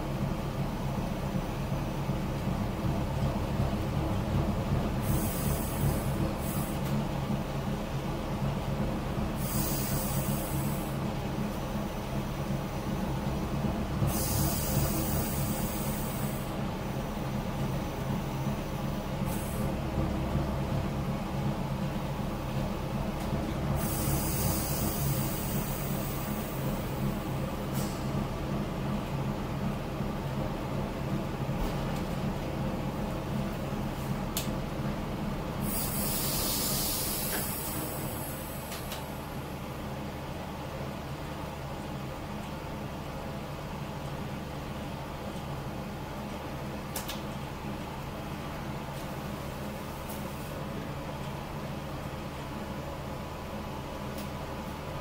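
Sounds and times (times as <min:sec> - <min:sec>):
diesel engine low hum: 0:00.0 - 0:55.0
high hiss: 0:35.6 - 0:38.7.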